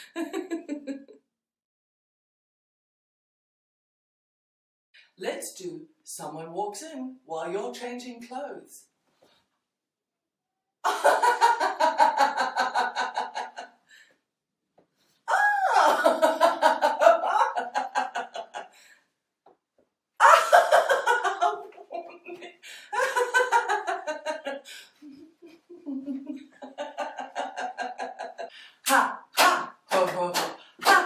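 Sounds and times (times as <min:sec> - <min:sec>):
woman laughing: 0:00.0 - 0:01.2, 0:15.3 - 0:18.7, 0:20.2 - 0:28.6.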